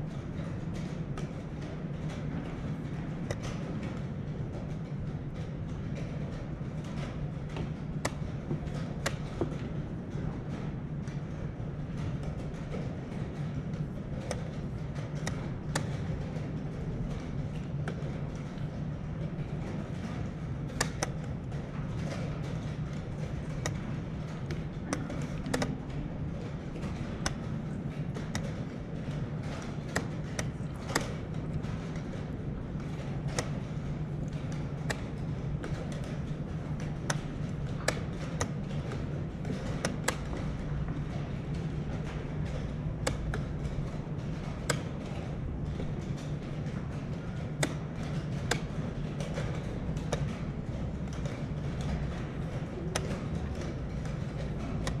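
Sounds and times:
steady low hum: 0:00.0 - 0:55.0
chess pieces tapping on board: 0:22.0 - 0:55.0.

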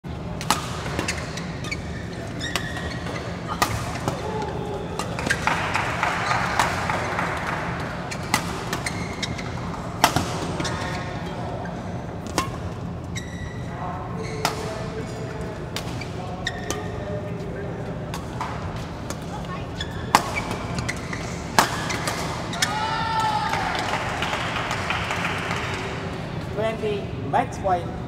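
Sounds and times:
crowd noise: 0:00.1 - 0:12.3
steady low hum: 0:00.1 - 0:23.0
rackets striking shuttlecock: 0:00.4 - 0:01.8, 0:02.4 - 0:11.4, 0:20.1 - 0:22.7.

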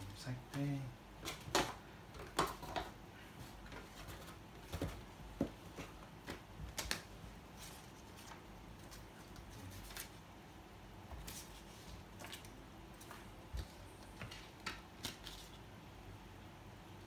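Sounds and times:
paper and cardboard rustling: 0:01.2 - 0:10.2, 0:11.1 - 0:15.6.

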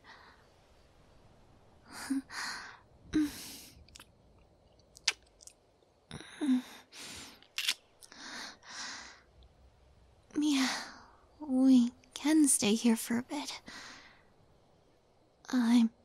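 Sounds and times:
wet kissing lip smacks: 0:05.0 - 0:05.5, 0:07.6 - 0:07.8.

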